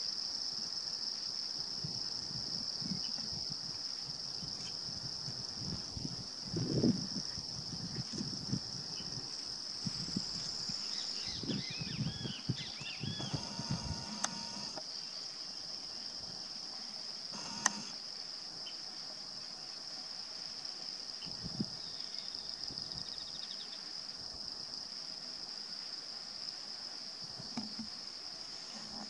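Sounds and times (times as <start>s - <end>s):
insects chirring: 0.0s - 29.0s
sharp click: 17.4s - 18.0s.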